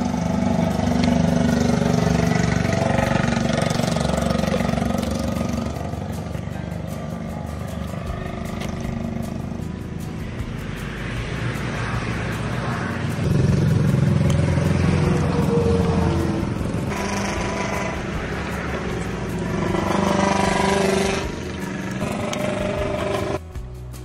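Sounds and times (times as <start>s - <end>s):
motor engine running: 0.0s - 23.4s.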